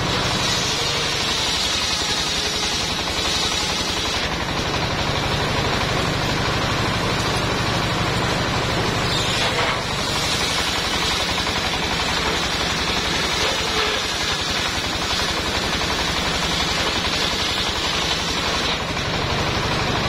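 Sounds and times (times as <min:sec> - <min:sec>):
diesel engine running: 0:00.0 - 0:20.0
saw blade whining: 0:00.0 - 0:20.0.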